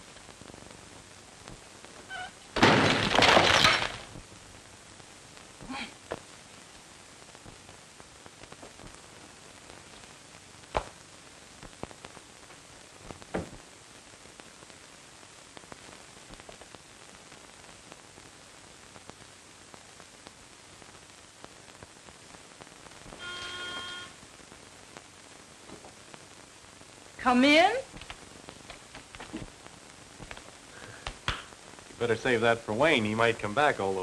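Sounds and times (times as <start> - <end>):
film soundtrack hiss: 0.0 - 34.0
soft clicks and thumps: 27.9 - 31.6.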